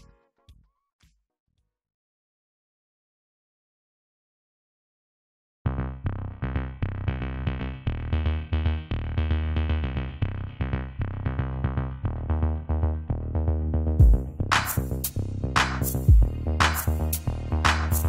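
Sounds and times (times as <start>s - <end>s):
electronic music with drum-machine beat: 0.0s - 0.8s, 5.9s - 18.0s.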